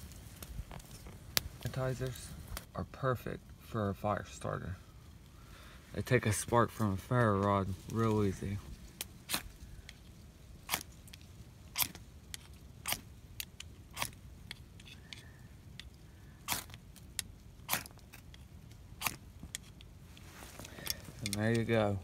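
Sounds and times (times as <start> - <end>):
ferro rod scraped by striker: 10.7 - 15.2, 15.8 - 19.9.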